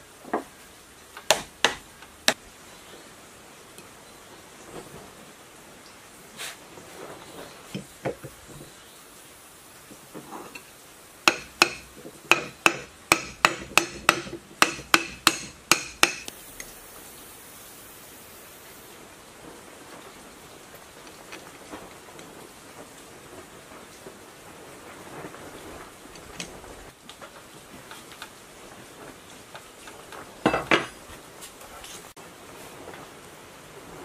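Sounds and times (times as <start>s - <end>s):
hammer striking metal: 11.3s - 16.3s.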